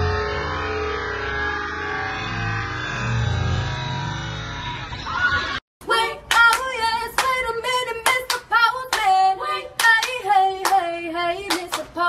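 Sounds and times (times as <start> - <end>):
handclaps: 6.3 - 7.4, 8.0 - 9.2, 9.8 - 12.0.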